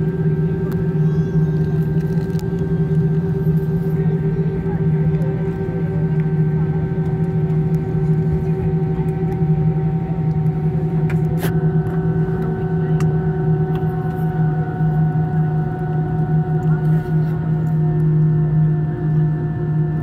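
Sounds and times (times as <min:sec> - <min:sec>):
jet engines idling: 0:00.0 - 0:20.0.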